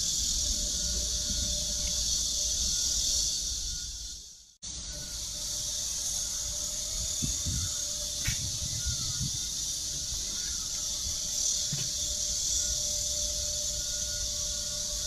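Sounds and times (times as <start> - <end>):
wind on microphone: 6.7 - 12.0.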